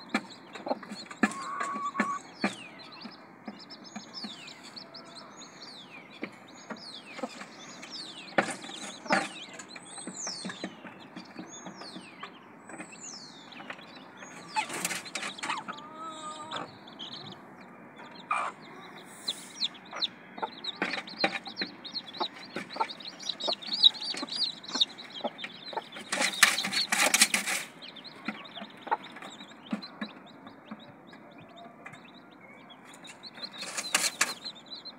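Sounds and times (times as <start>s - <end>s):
chicks peeping: 0.0s - 34.9s
hen clucking low: 0.6s - 2.3s, 14.5s - 17.4s, 18.0s - 26.4s
noisy flurry: 16.5s - 31.2s, 32.8s - 34.6s.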